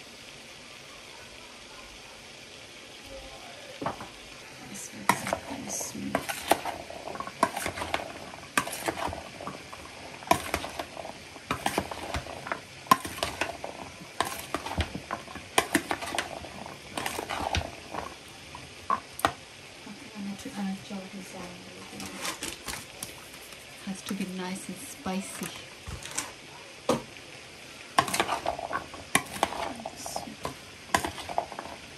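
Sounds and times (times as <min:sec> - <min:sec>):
faint steady hiss: 0:00.0 - 0:31.9
metal spoon scraping a dish: 0:05.0 - 0:18.1, 0:28.0 - 0:31.8.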